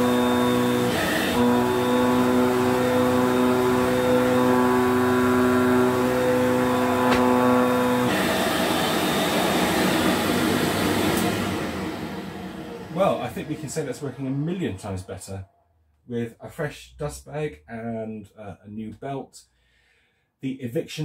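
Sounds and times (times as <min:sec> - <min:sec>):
vacuum cleaner running: 0:00.0 - 0:15.1.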